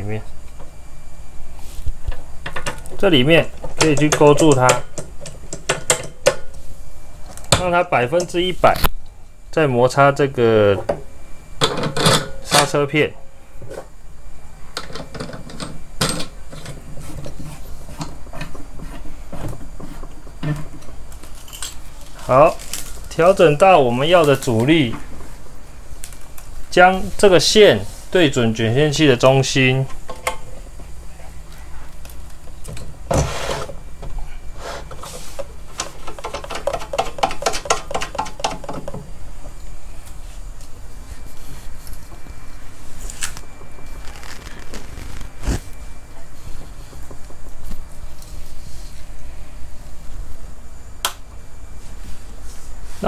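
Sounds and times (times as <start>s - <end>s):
low steady hum: 0.0s - 53.0s
clicks and metallic knocks: 3.6s - 6.5s, 35.8s - 39.0s.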